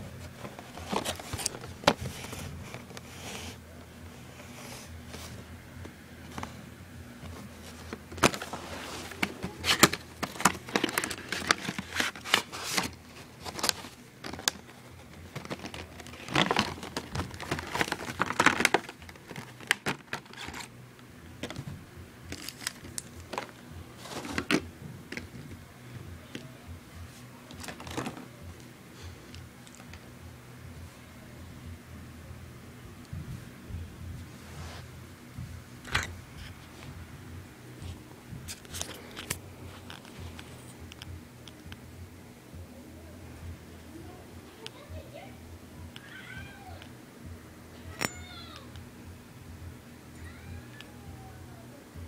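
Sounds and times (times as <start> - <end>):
cardboard and plastic crinkling: 0.1 - 3.5, 7.2 - 20.7, 21.4 - 25.6, 27.5 - 28.4.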